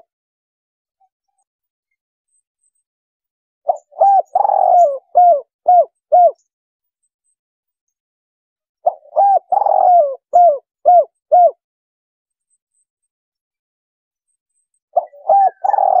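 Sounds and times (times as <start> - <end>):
dove cooing: 3.7 - 6.4, 8.8 - 11.6, 15.0 - 16.0.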